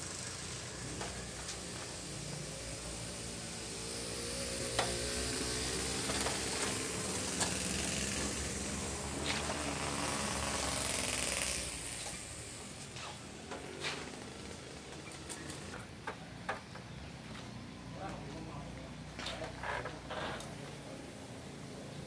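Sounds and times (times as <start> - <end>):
sprayer mist hissing: 0.0 - 15.7.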